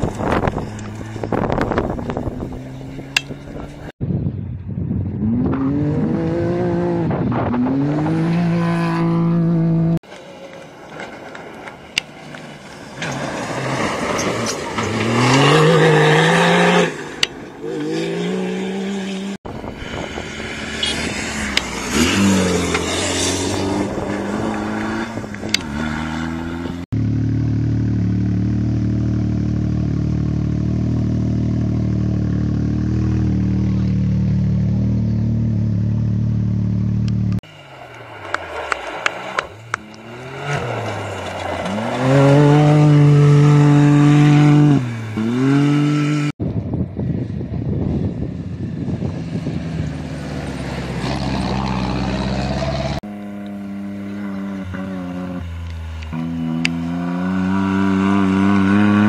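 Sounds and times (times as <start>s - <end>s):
engine revving through gears: 5.2s - 10.0s, 20.2s - 46.4s, 49.8s - 59.0s
rally car engines racing: 5.2s - 26.9s, 35.0s - 46.4s, 48.0s - 59.0s.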